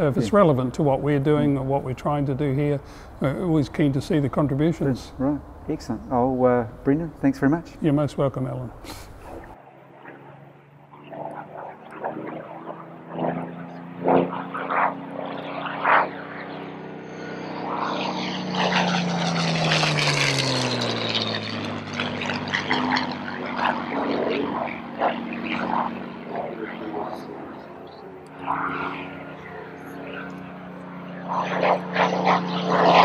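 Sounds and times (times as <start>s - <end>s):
propeller plane engine passing by: 0.0s - 33.0s.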